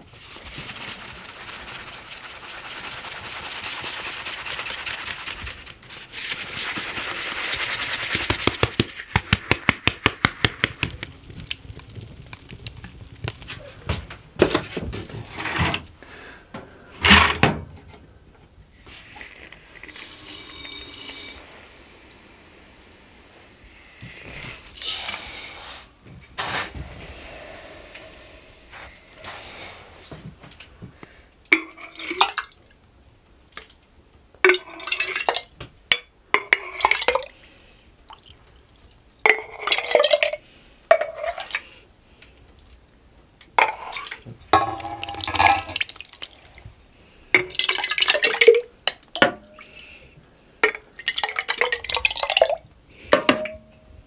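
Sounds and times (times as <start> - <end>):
liquid splashing into jar: 43.6 - 46.6, 47.4 - 49.7, 50.6 - 53.6.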